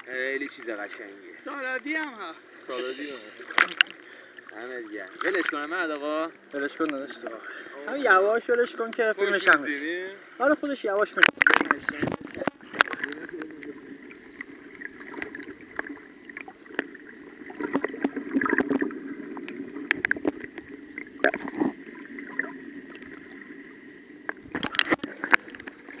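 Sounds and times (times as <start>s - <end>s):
water bubbling: 11.2s - 26.0s.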